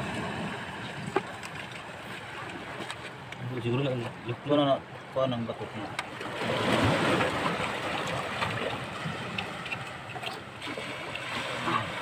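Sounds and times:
seawater splashing in rock hole: 6.1 - 12.0.

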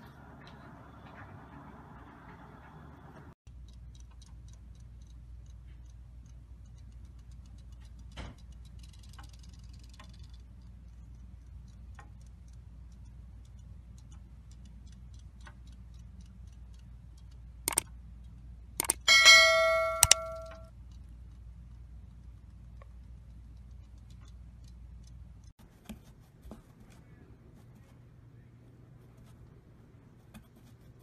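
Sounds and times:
low steady hum: 0.0 - 31.0
sharp click: 16.8 - 18.0, 18.8 - 20.7.

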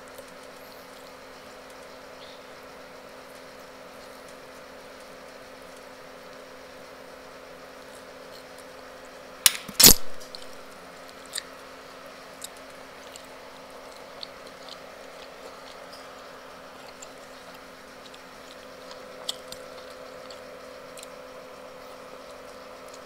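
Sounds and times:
eating and chewing: 0.0 - 2.4, 7.8 - 9.1, 10.2 - 23.0.

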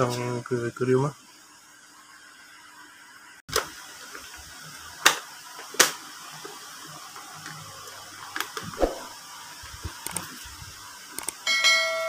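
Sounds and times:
sharp clicks: 11.1 - 11.4.

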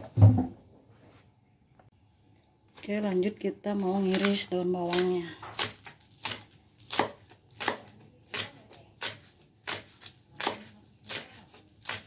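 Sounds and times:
knife slicing onions on board: 3.8 - 12.0.

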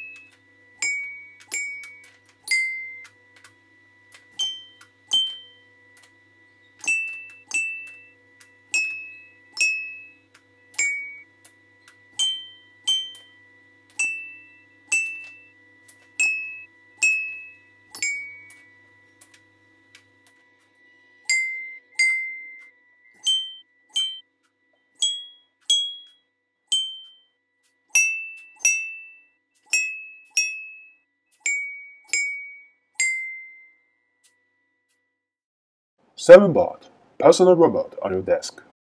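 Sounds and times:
toy xylophone notes: 0.0 - 3.1, 4.3 - 6.1, 6.8 - 8.1, 8.7 - 10.1, 10.7 - 11.3, 12.1 - 18.7, 21.2 - 24.2, 25.0 - 33.8.

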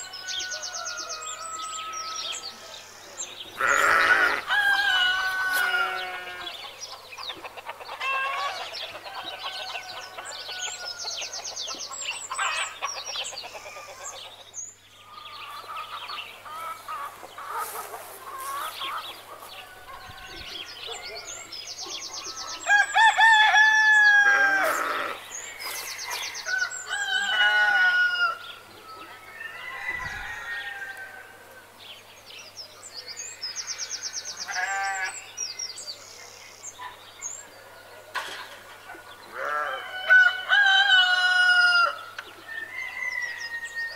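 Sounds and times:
small birds chirping: 0.0 - 23.2, 24.3 - 27.5
rooster crowing: 3.7 - 6.6, 22.6 - 25.2, 26.2 - 28.5, 29.3 - 31.4, 39.4 - 43.9
chickens clucking: 4.2 - 14.5, 15.1 - 22.7.

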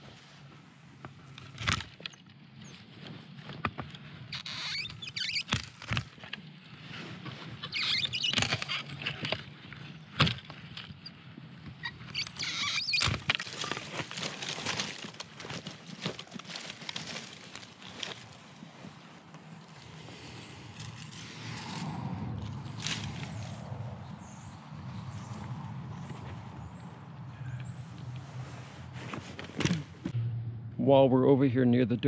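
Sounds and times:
twigs rustling over grass: 12.2 - 30.0
steady low hum: 20.7 - 32.0.

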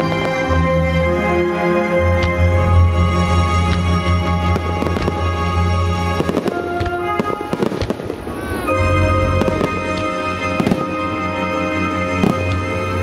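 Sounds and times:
loud music: 0.0 - 13.0.

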